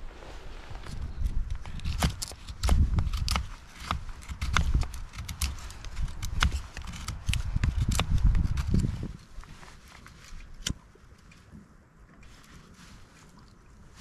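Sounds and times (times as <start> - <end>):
knife shaving wood: 0.8 - 10.8.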